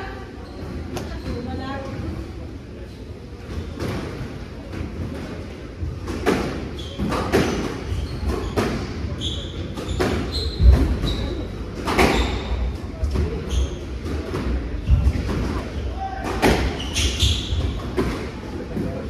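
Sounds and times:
sneakers squeaking on wooden floor: 0.3 - 1.7, 6.2 - 18.3
squash ball hitting rackets and walls: 3.5 - 19.0.

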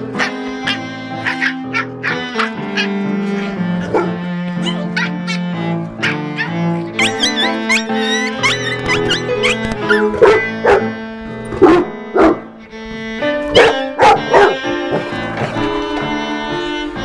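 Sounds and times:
background music with strings: 0.0 - 17.0
dog barking: 0.2 - 11.0, 11.6 - 12.5, 13.5 - 15.0.

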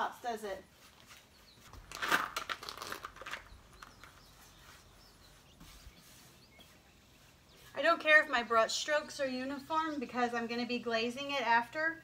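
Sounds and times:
rustling and crunching: 0.8 - 7.9.

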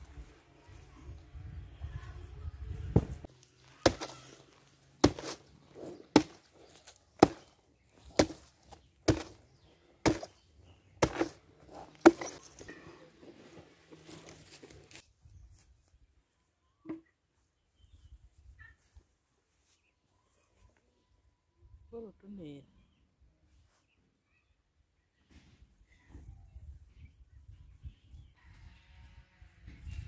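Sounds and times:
machete chopping banana stem: 3.8 - 4.4, 5.0 - 5.5, 6.1 - 9.4, 10.0 - 10.4, 11.0 - 12.4.

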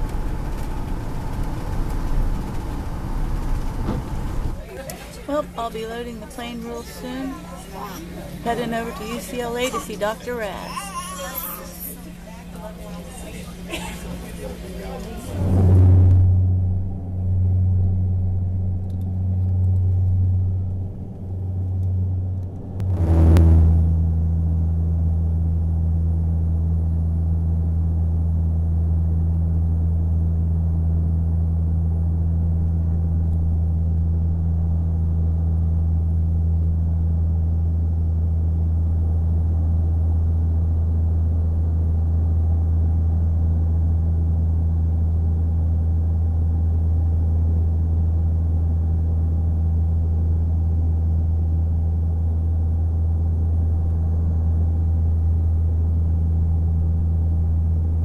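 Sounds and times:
jet engine and airflow drone: 0.0 - 10.4, 12.0 - 58.0
loud crackle: 21.6 - 24.1.

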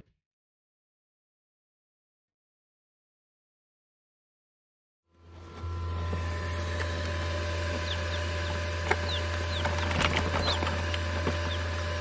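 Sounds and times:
steady low hum: 5.1 - 12.0
quail chicks peeping: 6.8 - 12.0.

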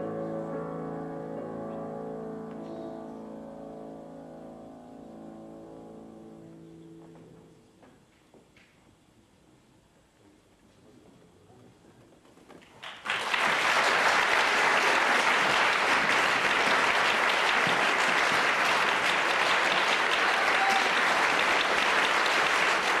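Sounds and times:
concert audience applauding: 12.8 - 23.0.

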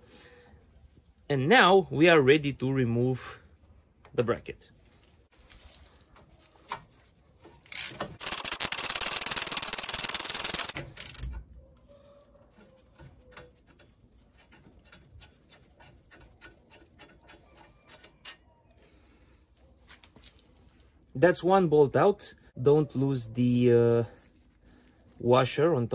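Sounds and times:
socket ratchet clicking: 7.7 - 11.4.

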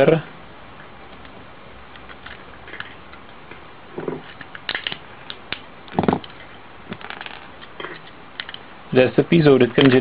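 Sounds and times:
plastic and metal clicks and scrapes: 4.0 - 8.6.

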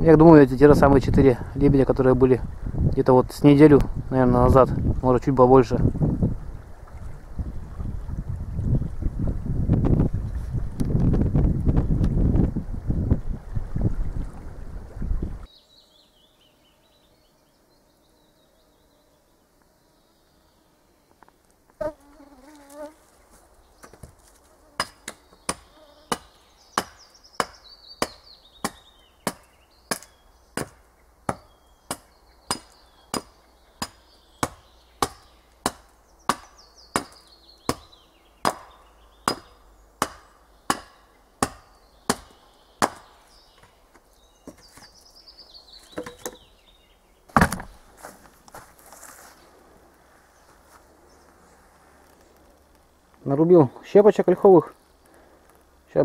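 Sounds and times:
hatchet chopping wood: 24.8 - 43.1, 47.4 - 47.7.

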